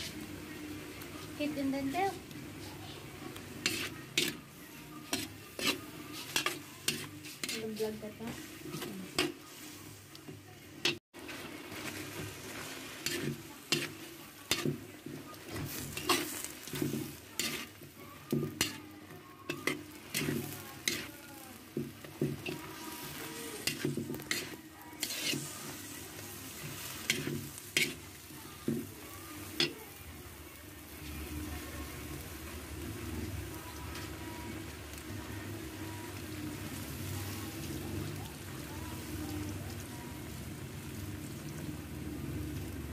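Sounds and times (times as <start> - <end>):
vegetables sizzling in a wok: 0.0 - 42.9
metal spatula scraping a pan: 1.2 - 29.9.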